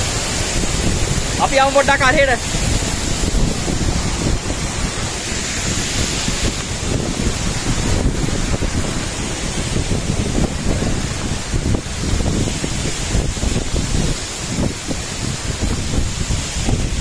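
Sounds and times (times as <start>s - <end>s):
waterfall rushing: 0.0s - 17.0s
wind buffeting microphone: 0.0s - 17.0s.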